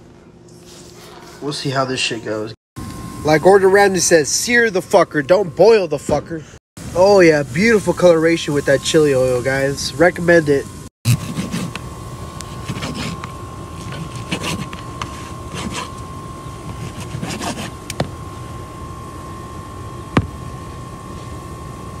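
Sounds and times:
high hum: 0.0s - 22.0s
knife scraping on cutting board: 12.5s - 16.0s, 16.7s - 17.8s.

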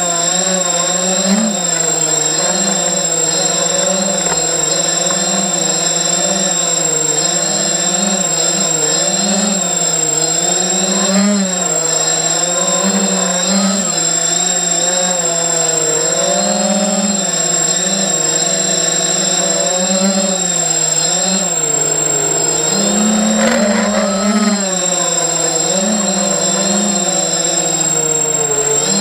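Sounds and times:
drone motors whining: 0.0s - 29.0s
steady high tone: 21.4s - 26.4s.

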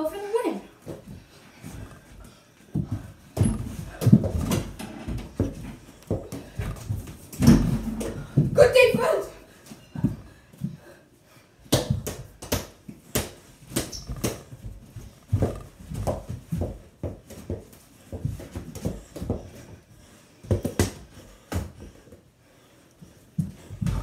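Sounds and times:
footsteps and bumps of players: 0.8s - 9.0s, 11.6s - 22.3s, 23.4s - 24.0s
basketball bouncing on floor: 2.7s - 8.6s, 11.7s - 19.5s, 20.4s - 21.9s.

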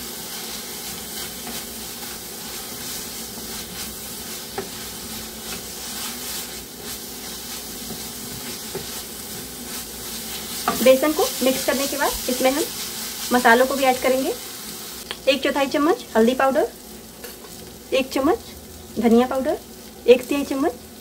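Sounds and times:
greens sizzling in hot oil: 0.0s - 21.0s
wooden spatula stirring: 0.3s - 14.5s.

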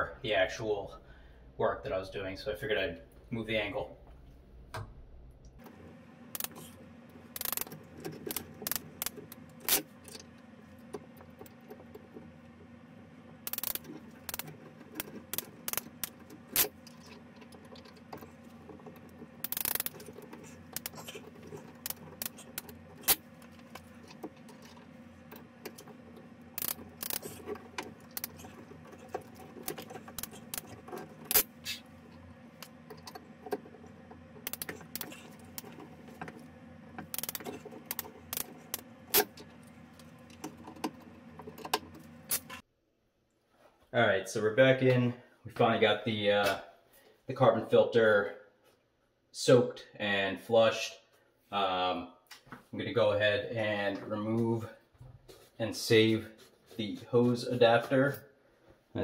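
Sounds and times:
steady low hum: 0.0s - 48.1s
hand tool clicking on metal fittings: 7.3s - 10.3s, 13.4s - 31.8s, 34.4s - 36.3s, 37.0s - 39.5s.

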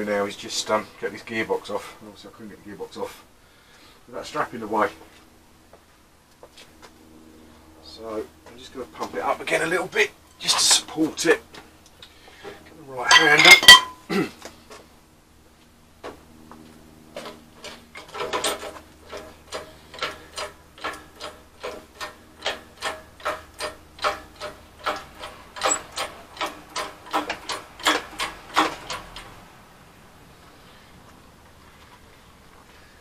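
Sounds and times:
hand pump handle clicking: 17.6s - 29.3s.

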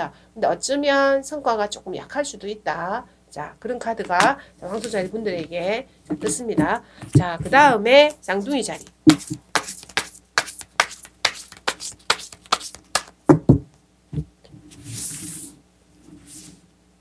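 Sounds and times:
cards shuffling: 4.1s - 5.6s, 8.7s - 13.2s
cards swishing on cloth: 8.7s - 13.2s
heavier knocks: 13.3s - 14.3s.

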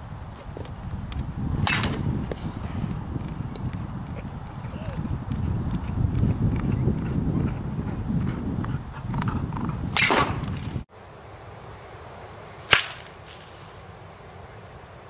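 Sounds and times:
wind rumble on microphone: 0.0s - 10.9s
baseball bat hitting ball: 1.6s - 3.8s, 9.9s - 10.7s, 12.7s - 13.5s.

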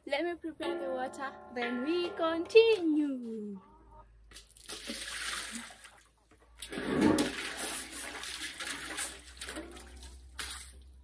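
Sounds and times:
water pouring into a basin: 4.5s - 11.0s.

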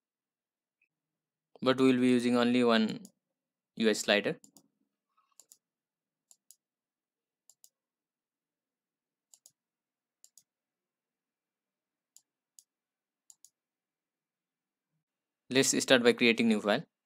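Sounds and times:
computer mouse clicks: 4.4s - 4.7s, 5.3s - 6.7s, 7.4s - 7.8s, 9.3s - 9.6s, 10.2s - 10.5s, 13.3s - 13.6s.

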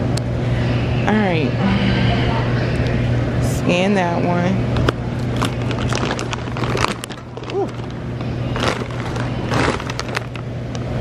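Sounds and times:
steady low hum: 0.0s - 11.0s
packages rustling: 5.2s - 10.5s.

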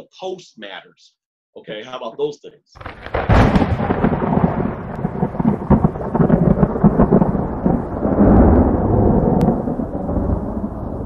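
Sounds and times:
crackling lightning strike: 2.8s - 11.0s
deep rolling thunder rumble: 2.8s - 11.0s.

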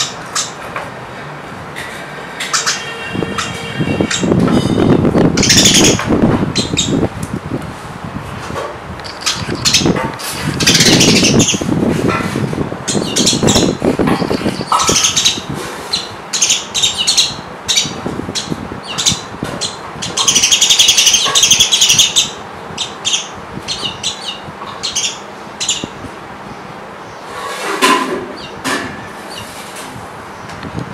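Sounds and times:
sparrows chirping: 0.0s - 0.7s, 2.4s - 7.1s, 9.0s - 11.8s, 12.8s - 27.7s, 28.4s - 28.6s, 29.2s - 29.6s.

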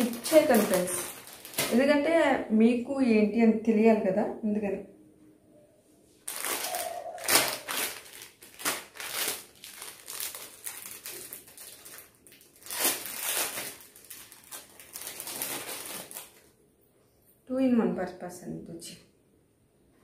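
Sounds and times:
packaging crinkling: 0.0s - 2.0s, 6.2s - 16.5s.

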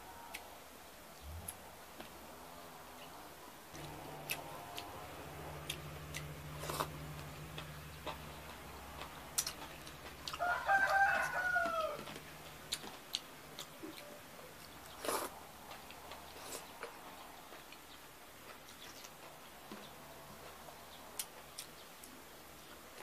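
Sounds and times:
low steady hum: 0.0s - 23.0s
chewing with wet clicks and smacks: 3.0s - 23.0s
loud drawn-out pitched call: 3.8s - 12.4s.

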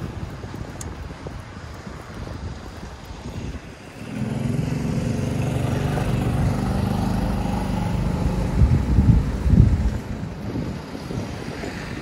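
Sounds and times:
wind buffeting microphone: 0.0s - 12.0s
motor engine running: 4.0s - 10.0s.

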